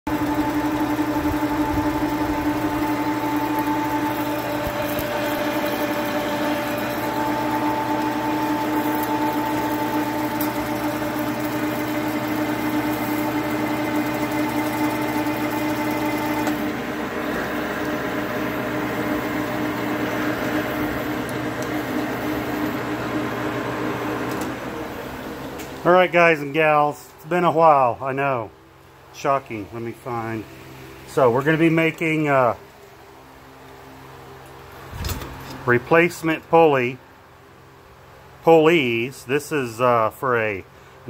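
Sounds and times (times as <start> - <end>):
lathe cutting whine: 0.1 - 25.5
machine hum: 0.1 - 39.6.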